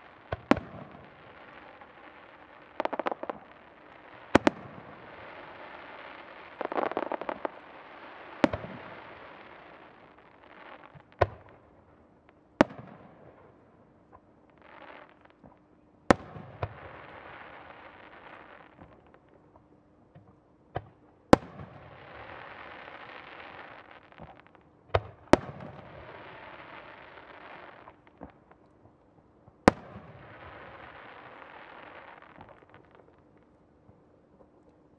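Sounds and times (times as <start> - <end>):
firework crackling hiss: 1.0 - 11.2, 30.0 - 33.0.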